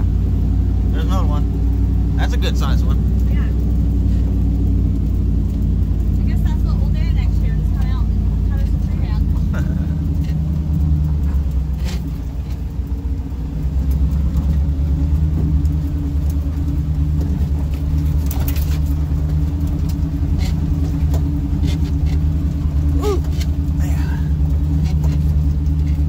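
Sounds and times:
engine running at low revs: 0.0s - 26.0s
truck knocks and rattles: 13.8s - 26.0s.

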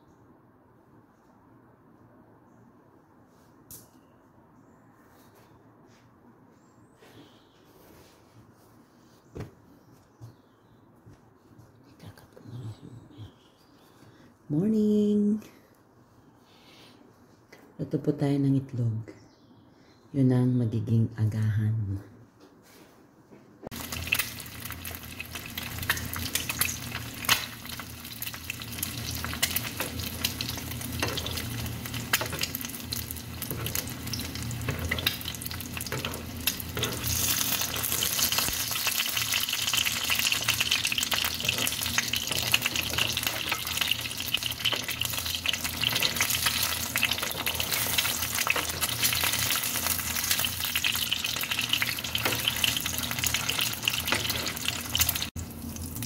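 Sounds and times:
egg sizzling in frying pan: 23.7s - 56.0s.

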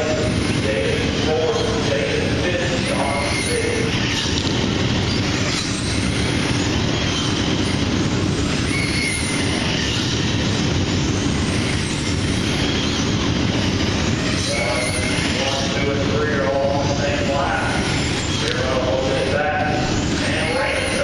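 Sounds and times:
short motor whines: 2.8s - 16.0s, 17.6s - 18.7s.

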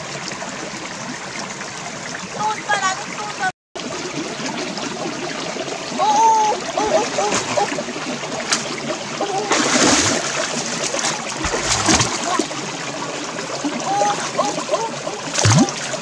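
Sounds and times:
running water: 0.0s - 16.0s
hands splashing in water: 9.4s - 12.7s, 15.4s - 16.0s.

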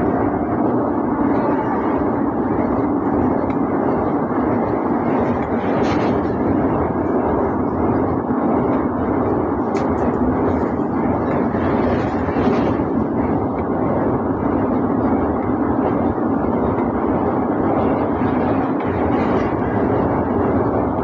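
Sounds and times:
train wheels rumbling on rails: 0.0s - 21.0s
sharp click: 9.7s - 10.3s.

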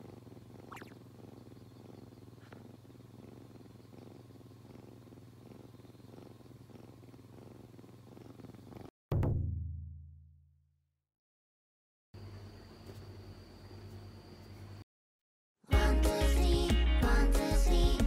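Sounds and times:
kitten purring: 0.0s - 8.9s.

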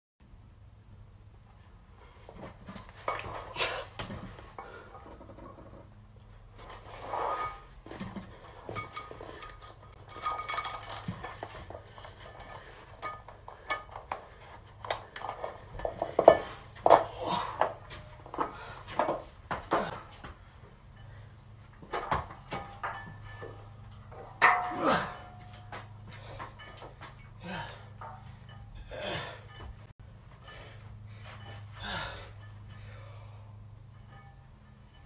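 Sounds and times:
weight plates clinking: 8.4s - 18.6s, 22.4s - 29.9s, 31.2s - 35.0s.

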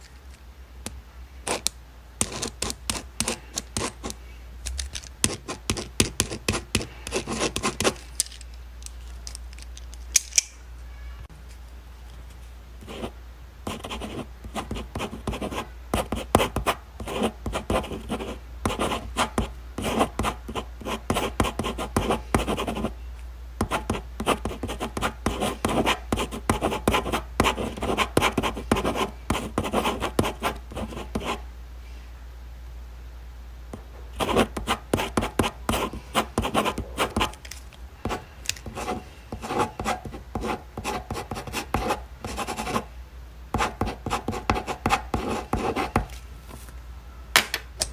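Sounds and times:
steady low hum: 0.0s - 47.9s
pen scratching on paper: 2.2s - 4.2s, 5.2s - 8.0s, 12.8s - 13.1s, 13.7s - 22.9s, 23.6s - 31.4s, 34.2s - 37.3s, 38.1s - 42.9s, 43.6s - 46.1s.

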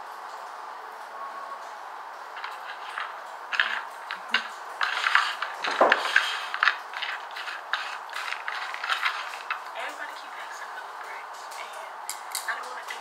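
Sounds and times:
chewing crunches: 2.4s - 9.8s.

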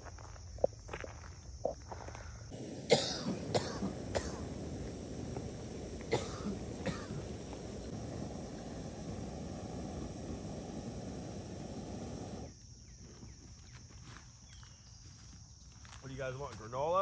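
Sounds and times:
harsh coughs: 2.8s - 4.6s, 6.1s - 7.2s.

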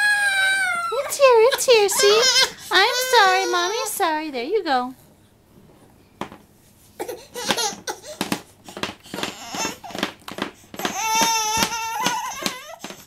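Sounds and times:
baby whimpering and crying: 0.0s - 4.0s, 9.1s - 10.2s, 10.8s - 13.0s.

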